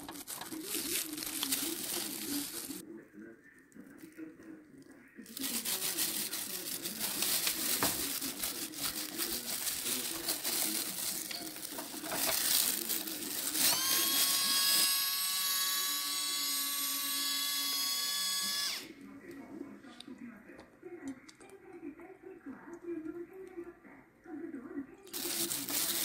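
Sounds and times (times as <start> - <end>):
plastic glove crinkling: 0.0 - 2.8, 5.2 - 14.9, 25.1 - 26.0
electric grinder whirring: 13.5 - 18.9.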